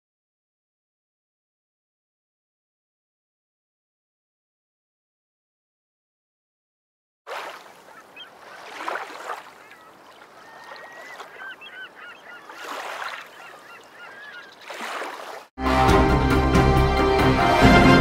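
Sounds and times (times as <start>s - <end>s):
seabirds calling: 7.3s - 15.5s.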